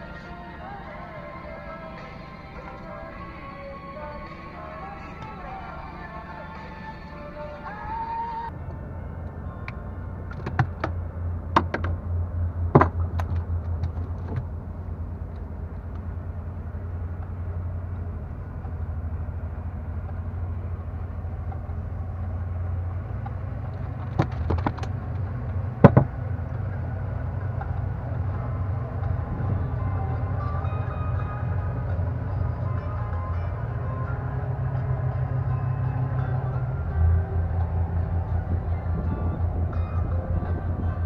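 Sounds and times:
boat engine rumbling: 0.0 - 41.0
knocks of fish and tackle: 12.8 - 14.4, 25.8 - 26.2.

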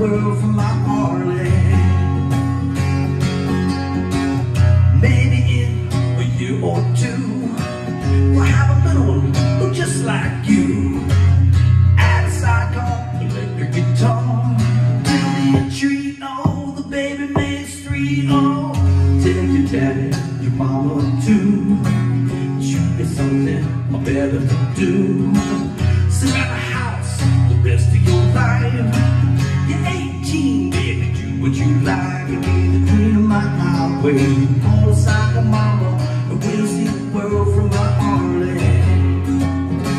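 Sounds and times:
man singing country song: 0.0 - 39.9
strummed acoustic guitar: 0.0 - 39.9.

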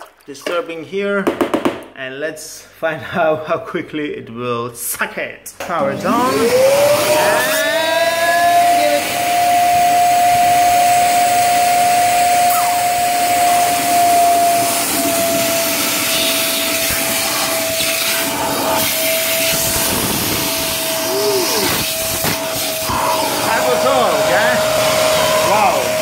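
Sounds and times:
wet and dry vacuum whining: 5.8 - 26.0.

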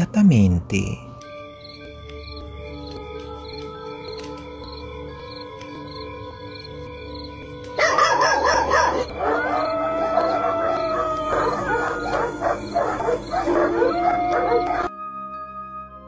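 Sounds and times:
dog barking and howling: 7.8 - 14.9.

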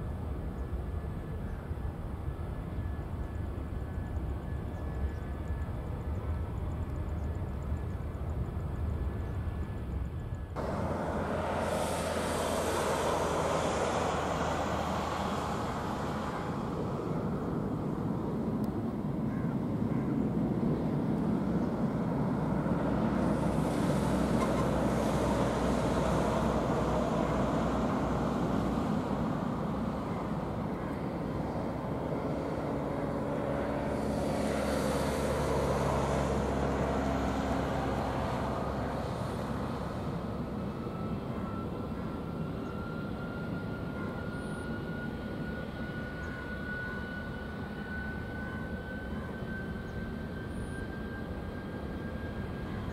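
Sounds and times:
jet engines rumbling: 0.0 - 52.9
thin whine rising in pitch: 10.5 - 18.8, 21.6 - 52.9.

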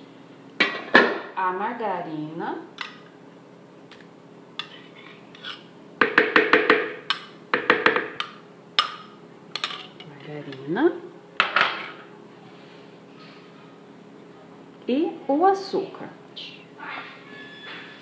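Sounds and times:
kitchenware clinking and knocking: 0.6 - 1.3, 7.6 - 8.2, 11.4 - 12.0.

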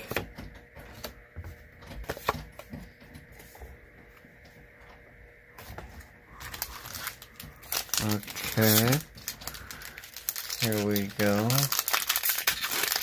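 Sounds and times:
cards rustling: 6.4 - 13.0.

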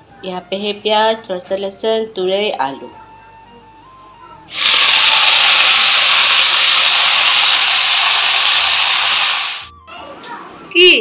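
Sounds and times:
vegetables sizzling in hot oil: 4.5 - 9.7.

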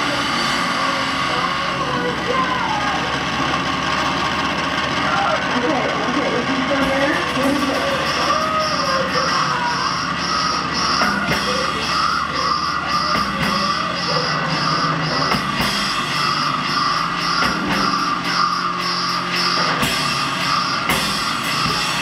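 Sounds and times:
band playing live: 4.4 - 22.0.

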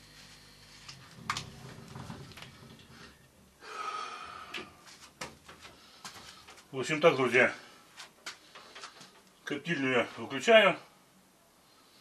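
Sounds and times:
man breathing heavily and snorting: 2.8 - 6.7.

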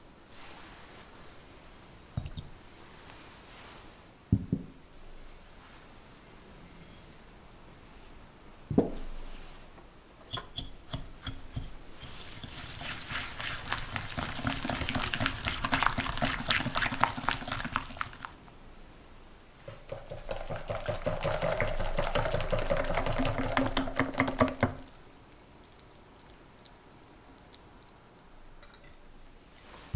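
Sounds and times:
whisk beating in glass bowl: 10.3 - 18.3, 19.7 - 24.8.

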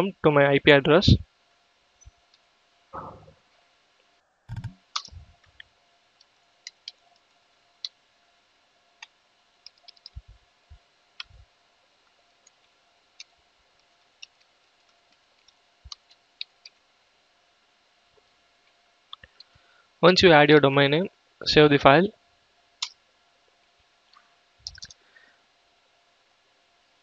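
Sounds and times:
keyboard key clicks: 4.5 - 5.2.

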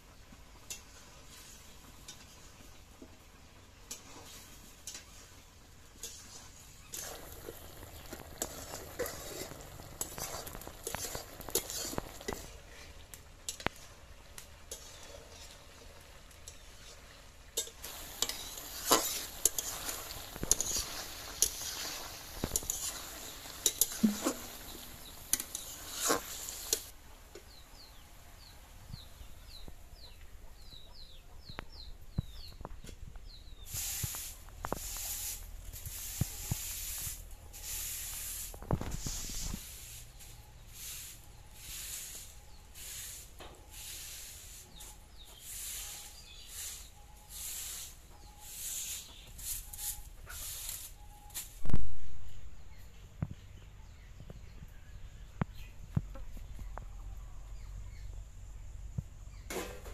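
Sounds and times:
broom sweeping concrete floor: 0.8 - 2.4, 4.0 - 5.4, 6.0 - 12.8, 17.8 - 26.9, 33.6 - 51.8
food sizzling: 5.8 - 27.4, 33.6 - 44.7
metal ladle scraping iron pan: 6.0 - 12.6, 14.6 - 15.7, 17.5 - 26.9.

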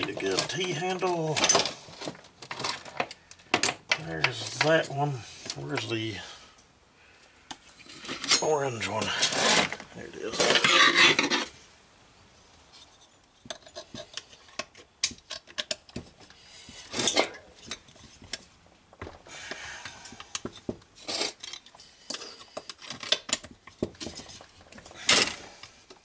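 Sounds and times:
metal scrape: 7.7 - 11.7, 16.6 - 18.2, 21.0 - 23.2
metal tools clinking on workbench: 7.9 - 9.7.

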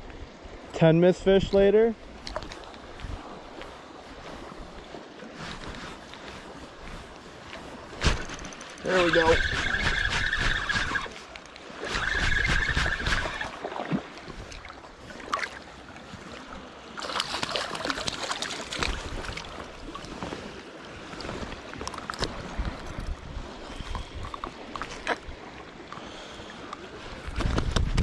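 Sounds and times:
water lapping at shoreline: 0.0 - 28.0
fishing tackle clicks and rustles: 2.2 - 4.4, 5.5 - 13.6, 17.0 - 20.5, 21.1 - 26.0, 26.7 - 28.0.

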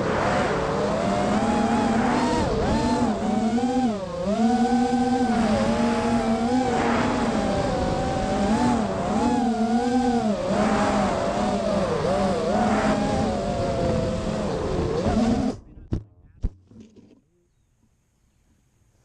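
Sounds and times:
rushing noise: 0.0 - 3.4, 5.2 - 15.4
drone motors whining: 0.0 - 15.8.

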